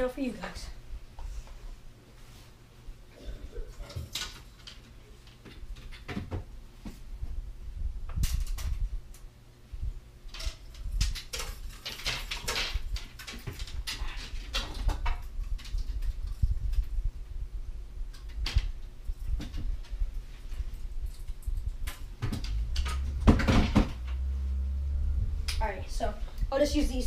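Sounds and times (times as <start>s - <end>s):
rustling and scraping: 1.2s - 2.8s, 10.4s - 17.2s, 18.1s - 26.3s.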